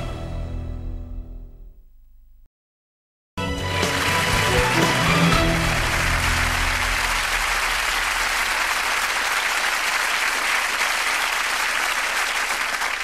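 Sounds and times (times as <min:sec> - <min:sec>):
theme music: 0:03.4 - 0:08.8
audience applauding: 0:03.5 - 0:13.0.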